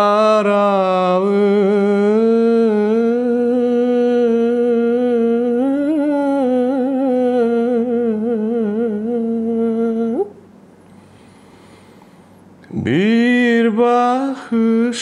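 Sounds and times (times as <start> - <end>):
man singing a cappella: 0.0 - 10.4, 12.6 - 15.0.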